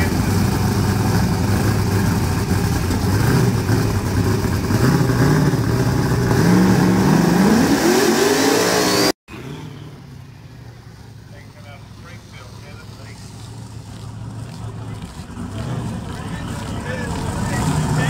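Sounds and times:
drag car engine revving: 0:00.0 - 0:18.0
background noise: 0:09.3 - 0:18.0.

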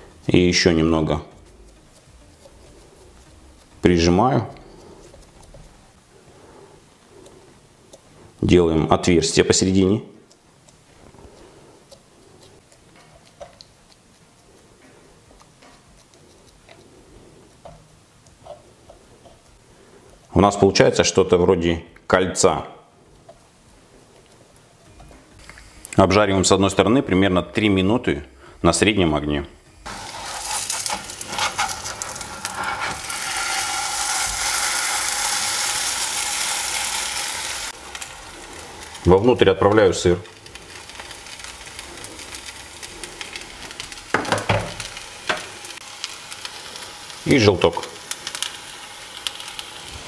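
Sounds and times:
food sizzling in oil: 0:29.6 - 0:50.0
spatula scraping a frying pan: 0:29.9 - 0:39.4.

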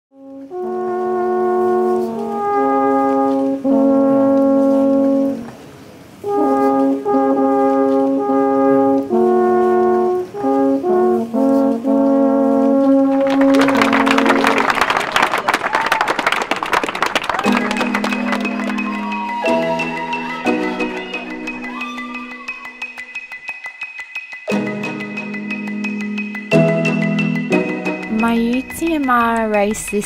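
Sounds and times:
brass horn melody: 0:00.1 - 0:15.4, 0:16.3 - 0:23.2
crowd applause: 0:13.1 - 0:24.0.

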